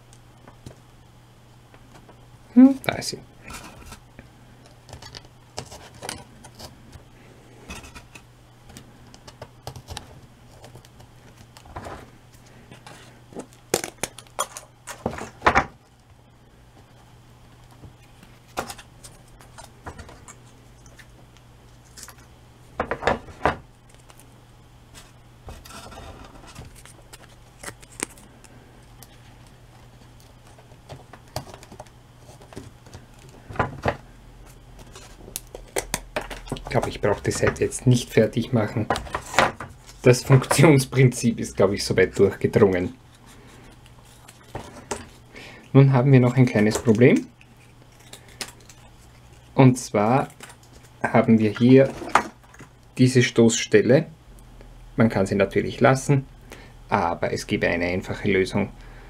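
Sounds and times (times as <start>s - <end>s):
steady low hum: 0.0s - 59.0s
cardboard rustling and scraping: 24.9s - 28.2s.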